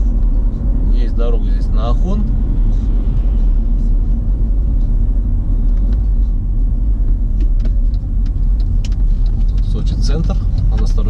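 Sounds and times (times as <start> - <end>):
car cabin road and engine rumble: 0.0 - 11.0.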